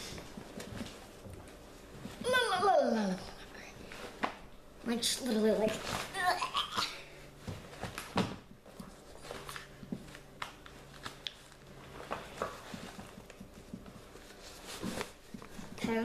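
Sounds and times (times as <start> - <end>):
faint hum: 0.0 - 16.0
cloth rustling: 8.9 - 16.0.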